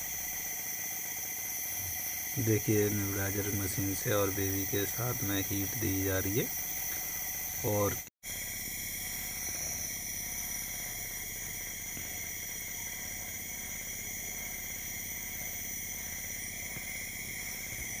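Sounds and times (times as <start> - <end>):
nebulizer pump humming: 0.0 - 18.0.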